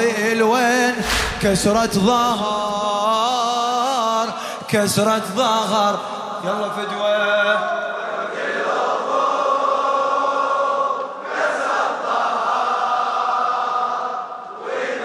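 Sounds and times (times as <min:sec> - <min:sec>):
crowd of men chanting in unison: 0:05.9 - 0:15.0.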